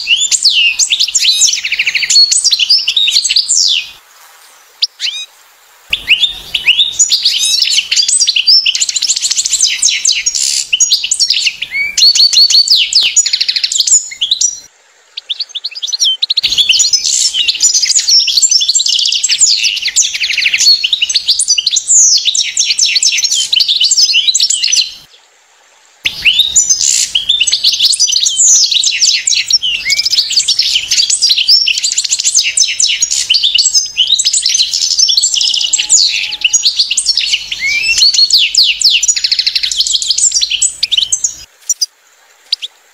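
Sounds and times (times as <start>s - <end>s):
finch twittering song: 0.0s - 4.0s, 5.9s - 25.1s, 26.1s - 41.9s.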